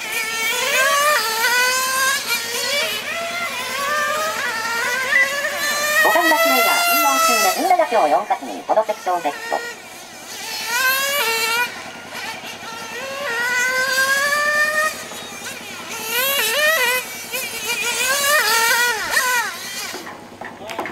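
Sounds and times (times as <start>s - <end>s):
model car engine high-pitched whine: 0.0s - 20.9s.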